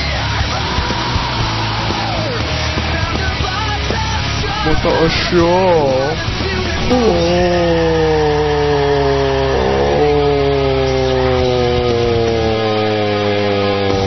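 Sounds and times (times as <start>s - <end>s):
steady low drone: 0.0s - 14.0s
buzzy engine-like tone: 4.4s - 14.0s.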